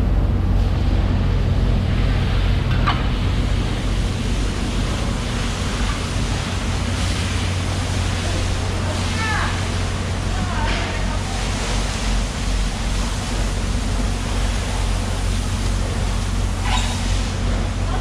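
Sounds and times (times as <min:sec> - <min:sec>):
low machine hum: 0:00.0 - 0:18.0
faint short squeak: 0:16.6 - 0:17.0.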